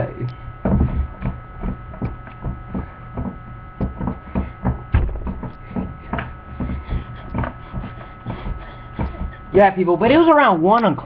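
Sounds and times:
electrical mains hum: 0.0 - 11.0
soft knocks and thumps: 0.6 - 9.3.

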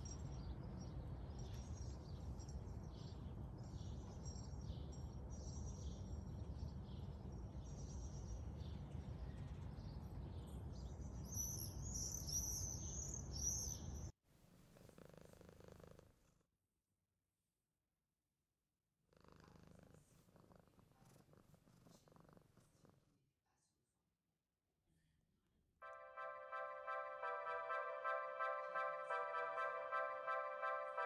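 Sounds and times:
cat purring: 14.5 - 16.4, 19.1 - 23.2.

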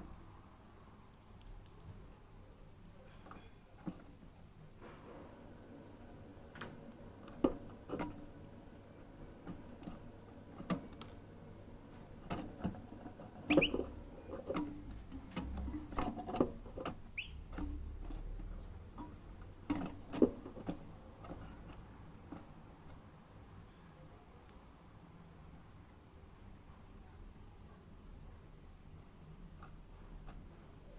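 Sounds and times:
faint bird chirps: 13.5 - 13.9, 17.1 - 17.4.

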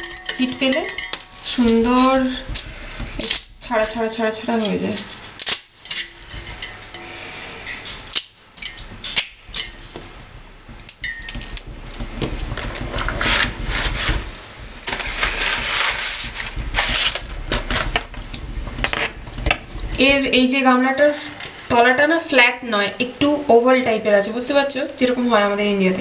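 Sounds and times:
sharp knocks: 0.0 - 4.1, 8.6 - 20.7
low rumble: 0.0 - 5.3, 8.6 - 21.6.

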